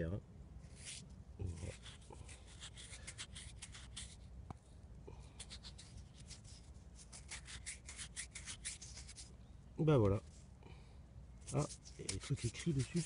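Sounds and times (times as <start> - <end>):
grit scratching on metal: 0.7 - 4.2, 5.4 - 9.3, 11.4 - 13.0.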